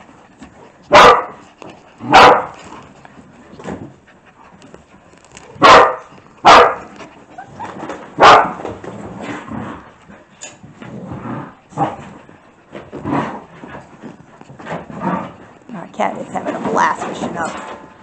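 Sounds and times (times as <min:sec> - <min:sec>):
dogs barking: 0:00.9 - 0:01.4, 0:02.0 - 0:02.6, 0:05.6 - 0:07.0, 0:08.2 - 0:08.7.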